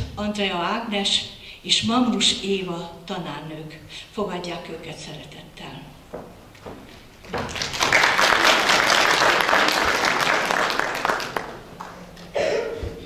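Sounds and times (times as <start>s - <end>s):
audience applauding: 7.2s - 12.3s.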